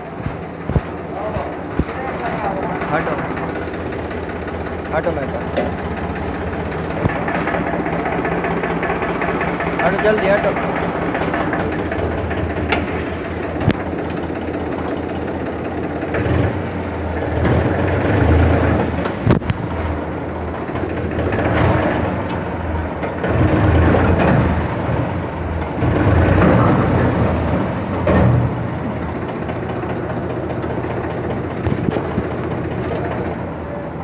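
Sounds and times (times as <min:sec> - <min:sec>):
tractor diesel engine running: 0:00.0 - 0:34.0
sharp knocks: 0:00.2 - 0:02.4.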